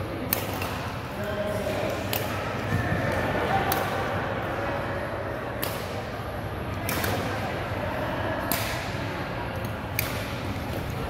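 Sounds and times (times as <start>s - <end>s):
steady background noise: 0.0s - 11.0s
racket hitting shuttlecock: 0.3s - 1.0s, 3.6s - 4.1s, 5.6s - 6.1s, 6.8s - 7.4s, 8.4s - 9.0s, 9.9s - 11.0s.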